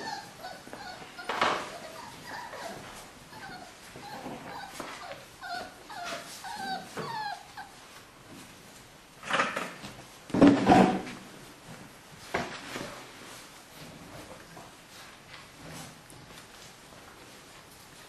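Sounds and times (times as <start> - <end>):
puppies whining and yipping: 0.0 - 7.8.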